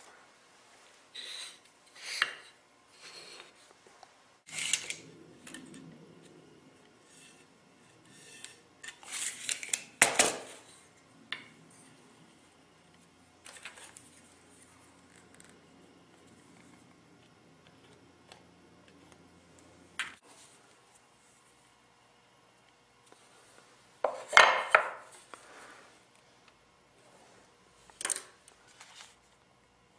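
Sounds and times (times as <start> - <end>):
hand tools scraping: 4.5 - 5.7, 7.0 - 9.9.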